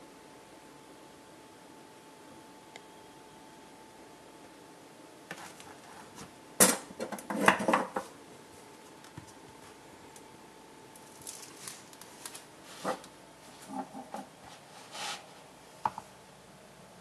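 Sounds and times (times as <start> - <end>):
soft rustling of cover: 11.1 - 13.7.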